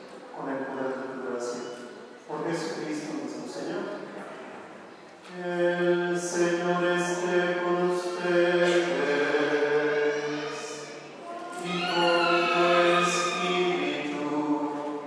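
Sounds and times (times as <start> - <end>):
voices singing a slow chant: 5.3 - 15.0.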